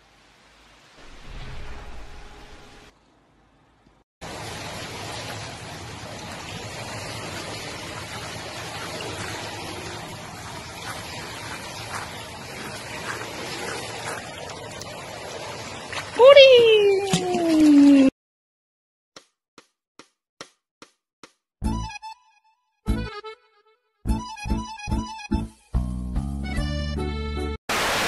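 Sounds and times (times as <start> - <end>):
water sloshing and splashing: 4.2 - 18.1.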